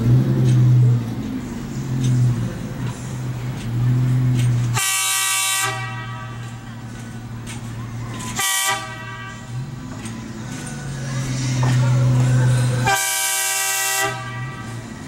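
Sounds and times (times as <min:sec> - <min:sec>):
low train rumble: 0:00.0 - 0:15.0
train horn: 0:04.7 - 0:06.5, 0:08.3 - 0:09.6, 0:12.8 - 0:14.9.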